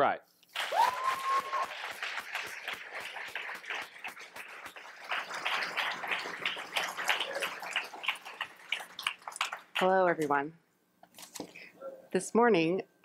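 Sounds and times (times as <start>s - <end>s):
audience applauding: 0.5s - 10.0s.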